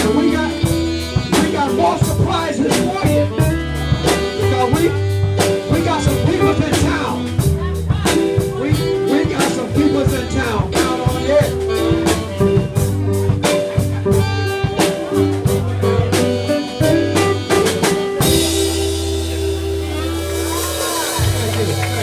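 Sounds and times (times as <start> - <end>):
man singing into microphone: 0.0 - 5.0, 5.6 - 7.4, 8.0 - 11.8
live blues band: 0.0 - 22.0.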